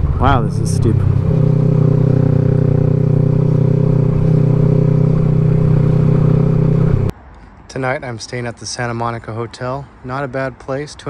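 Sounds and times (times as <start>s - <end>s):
motorcycle engine running: 0.0s - 7.1s.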